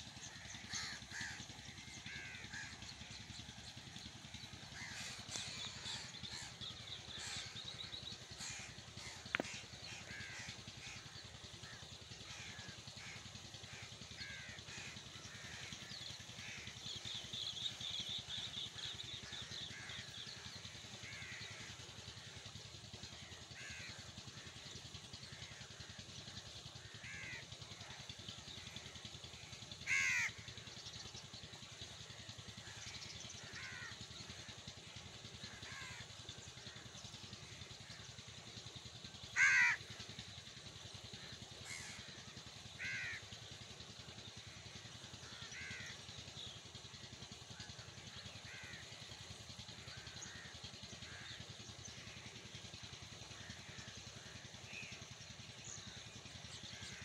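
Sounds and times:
crows cawing: 0:00.2 - 0:03.2, 0:04.8 - 0:07.7, 0:08.3 - 0:22.3, 0:23.2 - 0:24.1, 0:26.8 - 0:28.0, 0:29.4 - 0:30.6, 0:32.6 - 0:34.5, 0:35.4 - 0:36.0, 0:39.2 - 0:40.0, 0:41.6 - 0:43.3, 0:45.2 - 0:46.0, 0:47.6 - 0:49.0, 0:49.8 - 0:52.2, 0:53.4 - 0:54.9.

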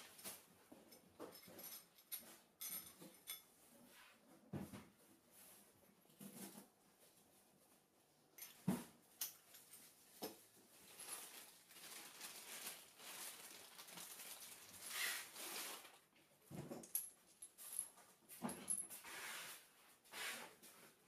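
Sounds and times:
small metal clinks: 0:00.9 - 0:03.5
plastic bag rustling: 0:10.5 - 0:16.1.

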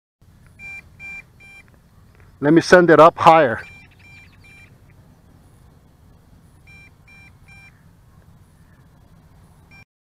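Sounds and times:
faint electronic warning beeps: 0:00.5 - 0:01.7, 0:03.5 - 0:05.0, 0:06.4 - 0:08.0, 0:08.8 - 0:09.9.

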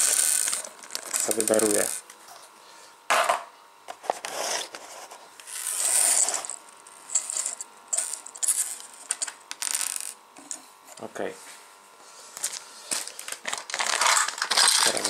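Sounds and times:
plastic bag crinkling: 0:00.0 - 0:02.0, 0:12.9 - 0:15.0.

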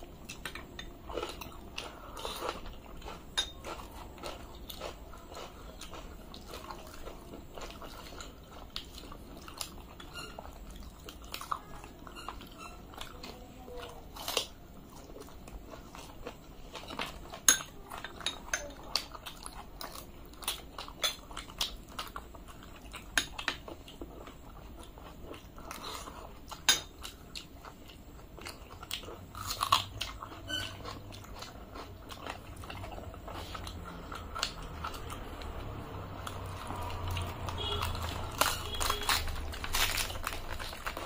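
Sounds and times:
chewing with mouth clicks: 0:00.0 - 0:41.0
fried bread tearing: 0:33.6 - 0:41.0.

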